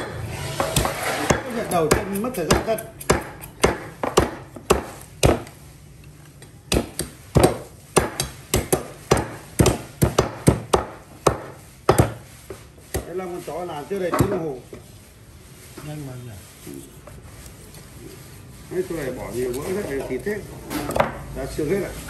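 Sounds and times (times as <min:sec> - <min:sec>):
knife chopping bones on wood: 0:00.6 - 0:05.6, 0:06.4 - 0:12.2.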